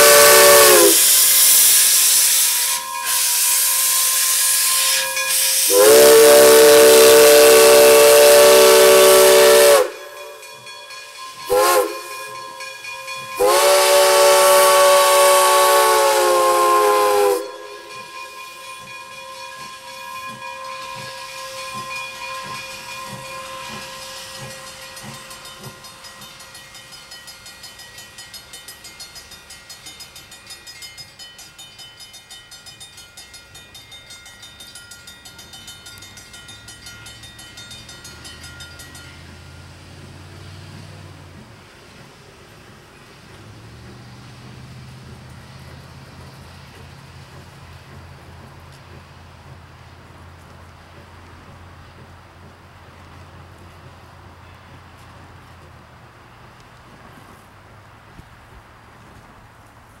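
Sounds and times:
steam whistle blasts: 0:00.0 - 0:25.2
steam locomotive hissing steam: 0:00.0 - 0:57.6
locomotive rumble pulling away: 0:35.7 - 1:00.0.

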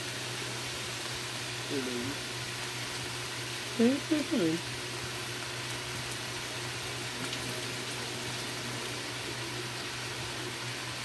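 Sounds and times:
food sizzling in a frying pan: 0:00.0 - 0:11.0.

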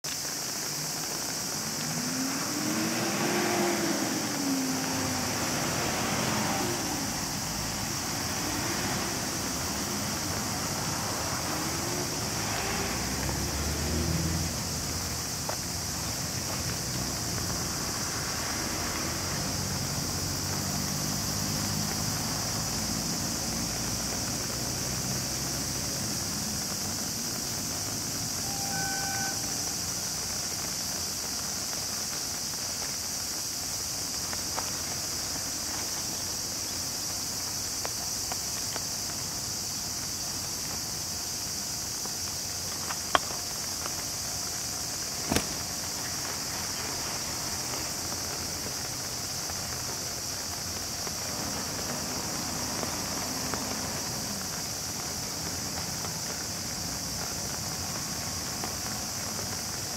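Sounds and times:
insects droning: 0:00.0 - 0:59.9
brief pitched tone: 0:28.4 - 0:29.7.

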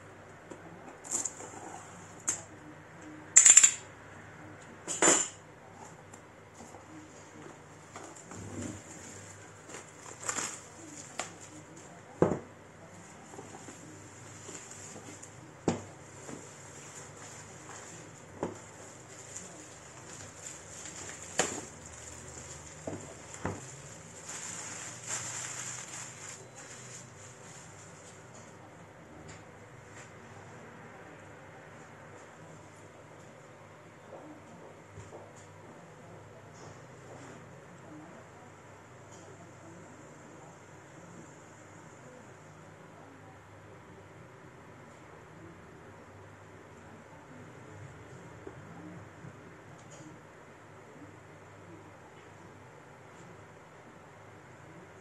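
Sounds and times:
packaging rustling: 0:09.1 - 0:11.6, 0:19.1 - 0:28.0.

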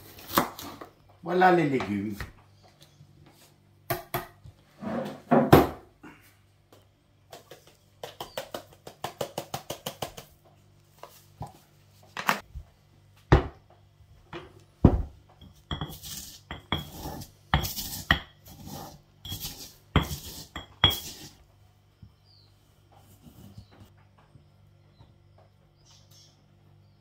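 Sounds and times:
pestle crushing and grinding: 0:15.4 - 0:21.4.

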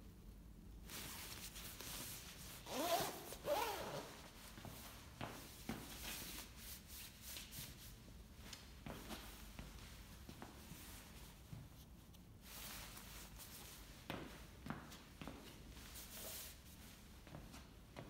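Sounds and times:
coat zipper zipping up: 0:02.6 - 0:04.2.

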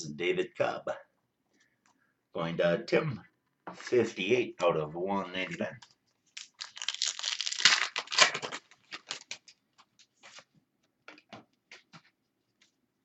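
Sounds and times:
cards clicking and rustling: 0:05.8 - 0:10.4
foil wrapper tearing and crinkling: 0:06.3 - 0:09.6.

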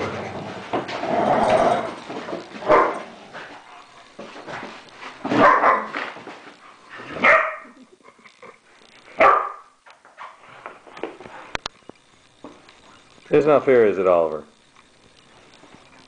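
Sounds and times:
dogs play-fighting: 0:00.0 - 0:11.7.

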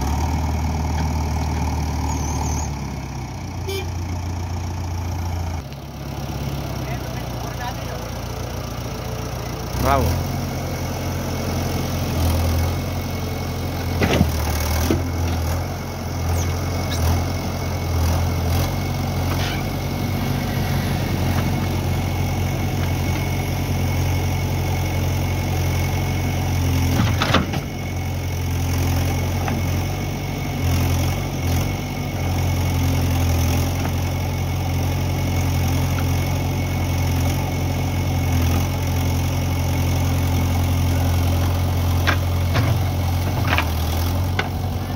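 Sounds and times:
diesel engine running: 0:00.0 - 0:44.9
backhoe bucket working soil: 0:11.2 - 0:24.6, 0:26.8 - 0:27.9, 0:40.2 - 0:44.9.

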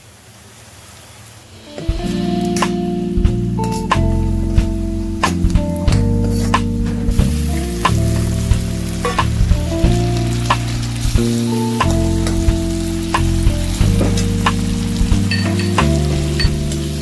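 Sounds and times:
soft background music: 0:01.6 - 0:17.0
vegetables sizzling in hot oil: 0:07.2 - 0:17.0.

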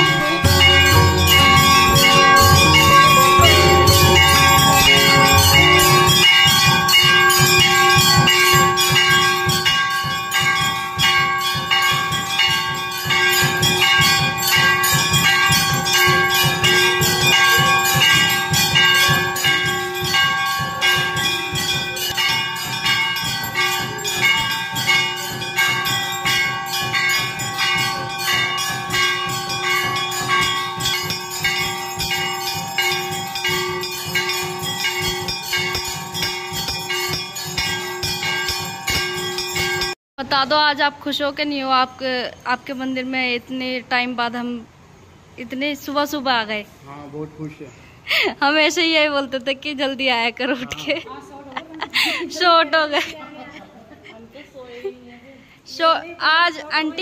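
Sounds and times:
low musical accompaniment: 0:00.0 - 0:06.7
temple bells clanging rapidly: 0:00.0 - 0:40.0.

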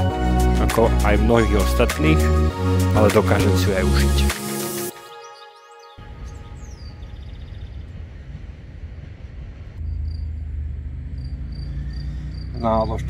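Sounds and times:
background music: 0:00.0 - 0:07.2
steady low rumble: 0:06.0 - 0:12.0
high insect chirp: 0:09.8 - 0:13.0.

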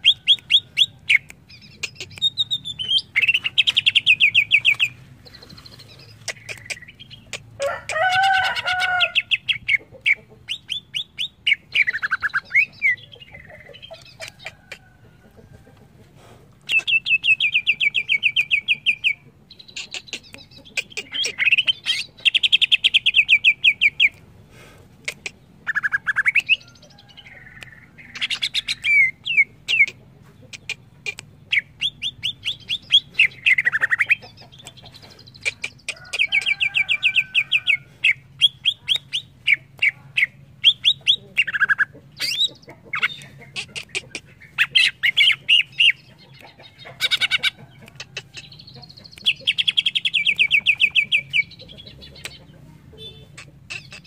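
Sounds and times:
bird singing trills and whistles: 0:48.1 - 0:52.4.

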